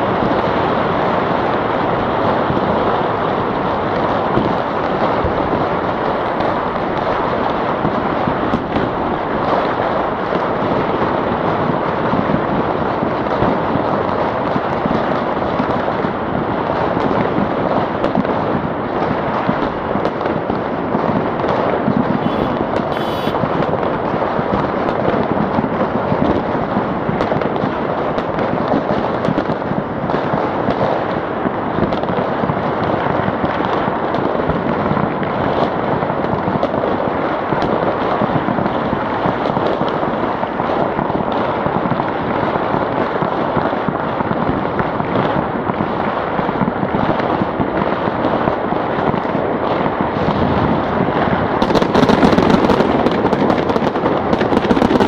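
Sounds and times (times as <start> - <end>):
firecrackers crackling: 0.0 - 55.0.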